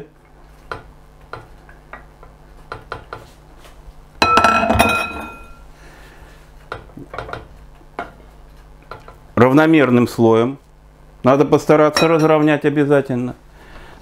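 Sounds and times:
glass lid clinking on counter: 4.2s - 5.6s.

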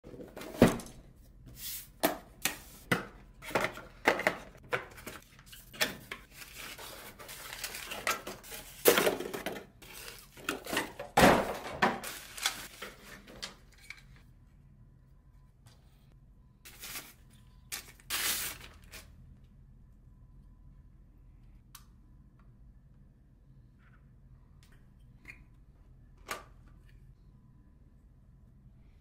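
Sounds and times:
crinkly wrapping rustling: 6.3s - 8.9s, 11.9s - 13.5s, 16.7s - 19.1s.

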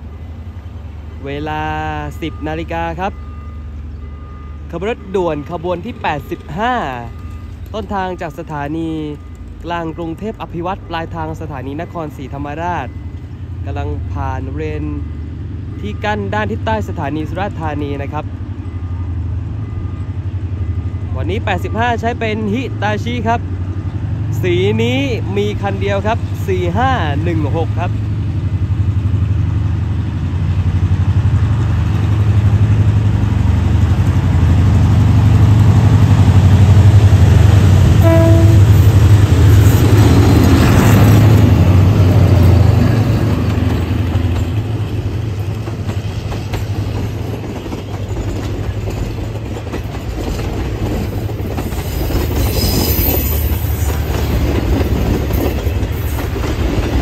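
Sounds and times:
locomotive engine drone: 0.0s - 51.8s
train horn toot: 38.0s - 39.0s
train wheels clattering on rails: 38.8s - 57.0s.

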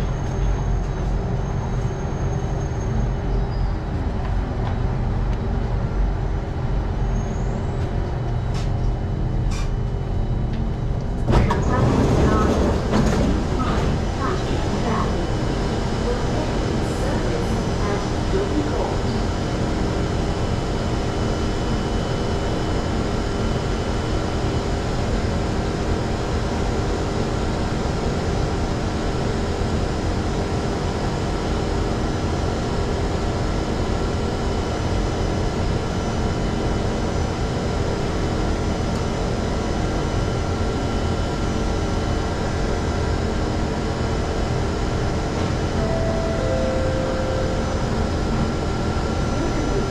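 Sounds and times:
electric train running: 10.5s - 21.1s, 44.9s - 49.9s.

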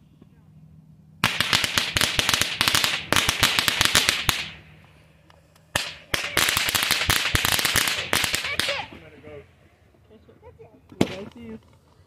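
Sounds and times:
fireworks crackling: 1.2s - 9.4s.

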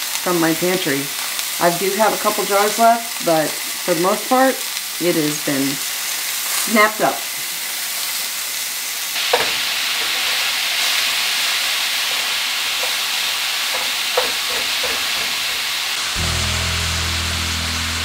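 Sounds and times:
meat sizzling in a skillet: 0.0s - 18.0s
wooden spoon scraping and knocking pan: 9.3s - 10.5s, 12.0s - 15.7s.

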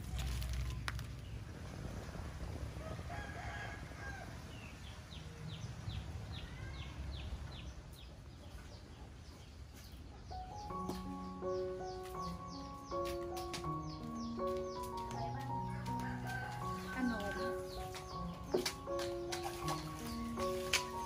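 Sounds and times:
rooster crowing: 2.8s - 4.5s, 15.7s - 17.8s
music: 10.3s - 21.0s.

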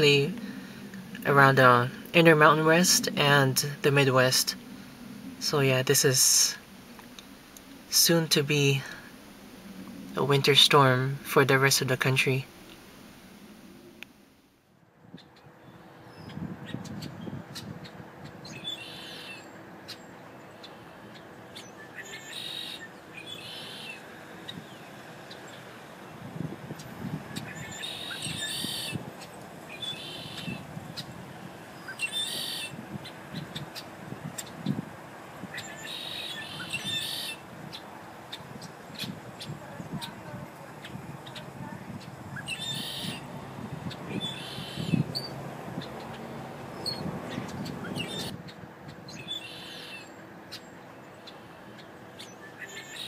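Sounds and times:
bird chattering: 16.2s - 20.0s, 20.6s - 25.8s, 26.8s - 31.1s, 31.8s - 34.8s, 35.5s - 53.0s
wiper blades squeaking on wet glass: 39.4s - 48.3s.

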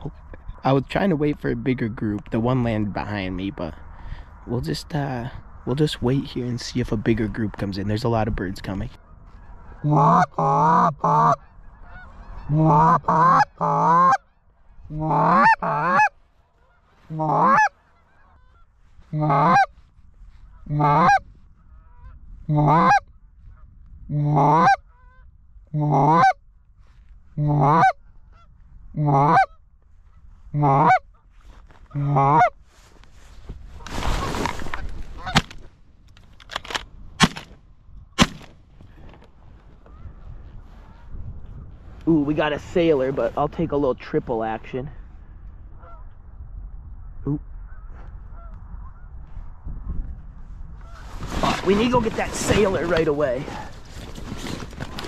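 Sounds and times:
goose call clucks and honks: 9.0s - 19.7s, 20.5s - 26.4s, 27.4s - 29.6s, 30.5s - 32.6s, 34.7s - 35.6s
shotgun shots: 36.6s - 37.5s, 38.2s - 38.6s.

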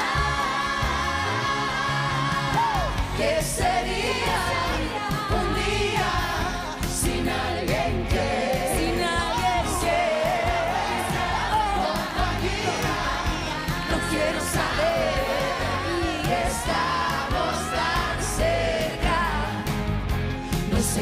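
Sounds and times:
backing singers: 0.0s - 21.0s
live pop band playing: 0.0s - 21.0s.

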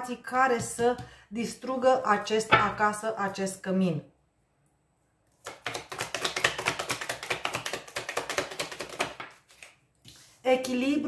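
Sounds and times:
cards being shuffled: 5.5s - 10.4s.

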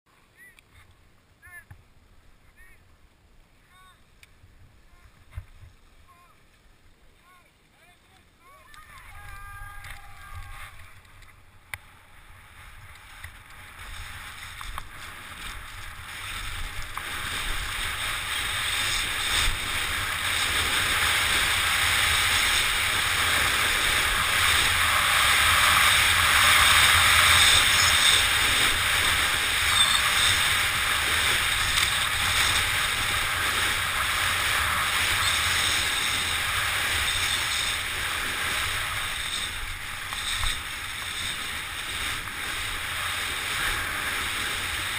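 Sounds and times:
wind rushing over microphone: 11.8s - 44.9s
skis hissing through snow: 11.9s - 44.9s.

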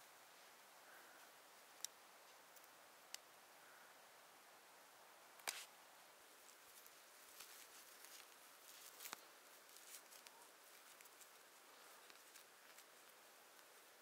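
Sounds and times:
twine rustling and crackling: 6.3s - 14.0s.

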